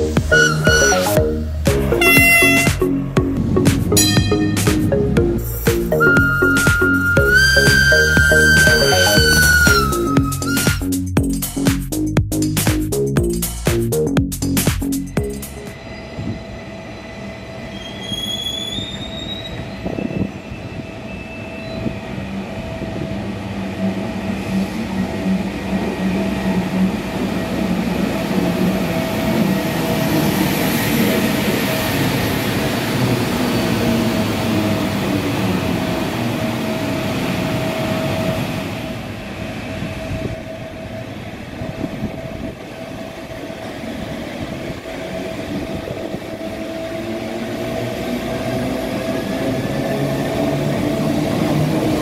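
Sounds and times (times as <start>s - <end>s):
electric locomotive running past: 0.0s - 11.6s, 14.4s - 52.0s
short rising squeals: 6.0s - 10.8s.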